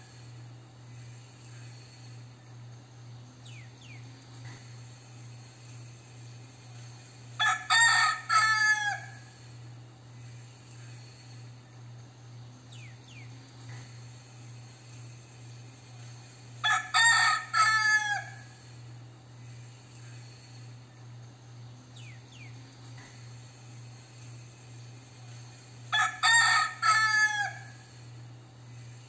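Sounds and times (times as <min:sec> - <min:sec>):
rooster crowing: 0:07.4 - 0:09.5, 0:16.6 - 0:18.8, 0:25.9 - 0:28.0.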